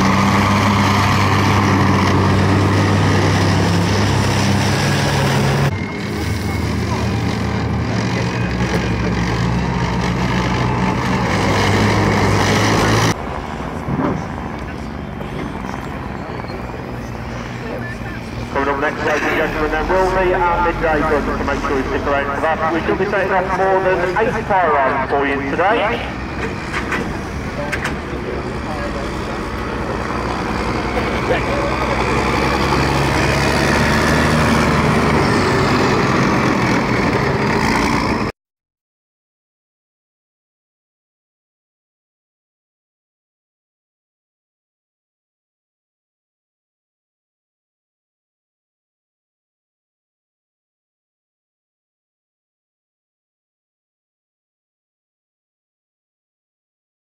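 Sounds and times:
tracked vehicle engine running: 0.0s - 38.3s.

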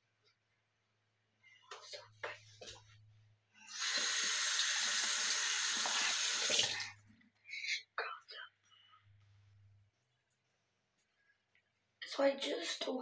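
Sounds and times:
tap running water into sink: 3.8s - 7.0s.

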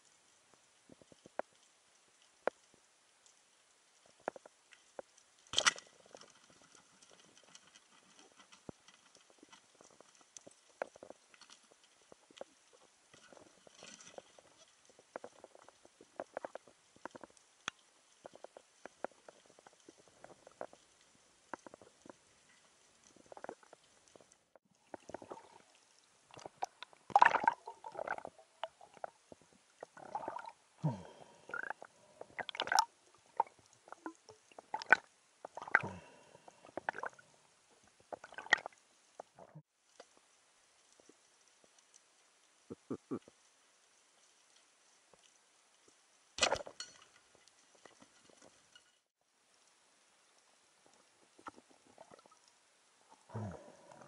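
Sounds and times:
faint underwater clicks: 0.0s - 54.0s
gurgling bubble bursts: 26.4s - 29.1s, 29.8s - 36.2s.

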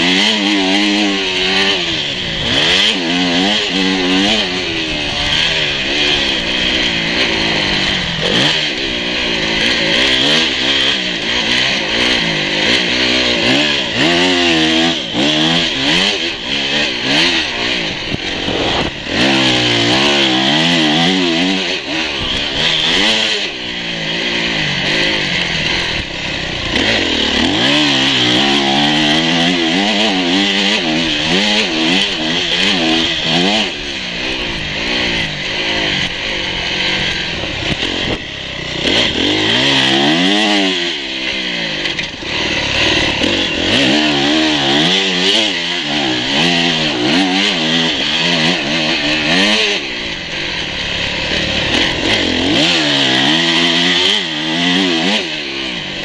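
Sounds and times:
dirt bike engine revving: 0.0s - 56.0s
wind noise on microphone: 18.0s - 19.0s.

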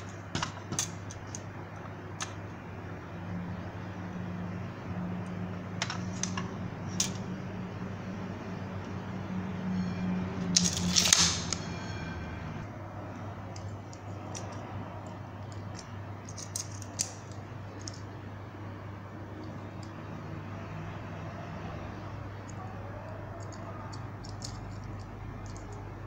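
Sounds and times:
plastic toy parts clicking: 0.0s - 1.4s, 5.8s - 7.2s, 15.4s - 18.1s, 23.4s - 25.9s
tape measure retracting: 10.6s - 11.6s.

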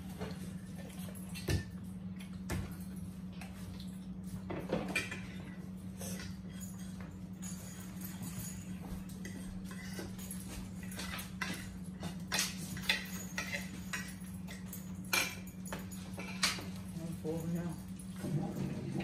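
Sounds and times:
cutlery clinking on plates: 4.6s - 16.9s.

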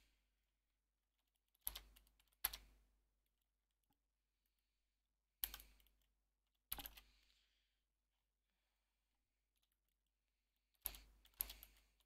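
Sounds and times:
computer keyboard typing: 1.4s - 2.8s, 5.4s - 7.1s, 10.7s - 12.0s.

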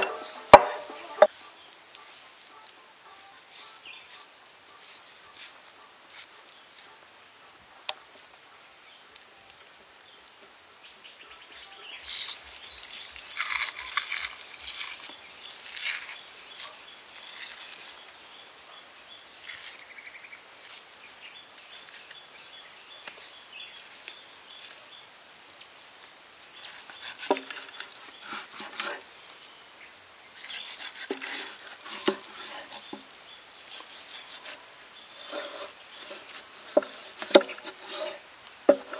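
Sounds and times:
cleaver chopping on wooden board: 0.0s - 1.3s, 27.0s - 29.0s, 30.8s - 33.0s, 35.2s - 38.9s
faint outdoor background: 0.0s - 38.9s.

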